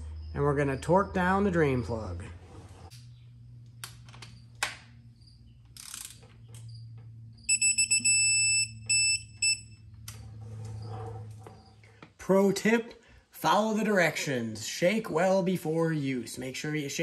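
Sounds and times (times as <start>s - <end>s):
torque wrench beeping: 7.5s - 9.9s.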